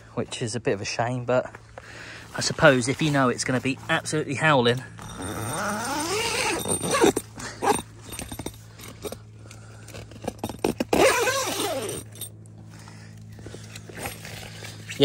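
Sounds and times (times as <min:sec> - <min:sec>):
zips: 0:05.0 - 0:08.0, 0:10.6 - 0:12.2.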